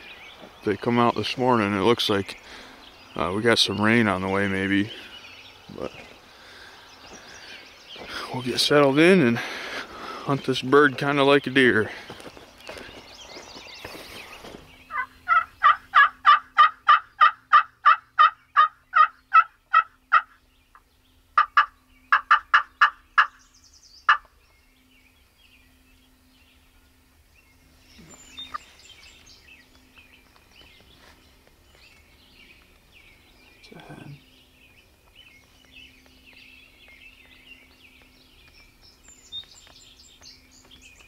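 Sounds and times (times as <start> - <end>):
wild turkey yelping: 14.9 - 20.8, 21.4 - 23.4, 24.0 - 24.3.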